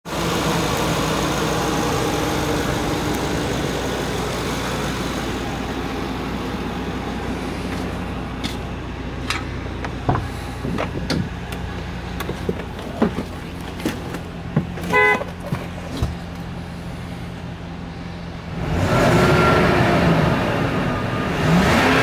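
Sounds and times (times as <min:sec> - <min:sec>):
van engine idling: 0:00.1 - 0:18.8
car door clicks and knocks: 0:09.8 - 0:11.4.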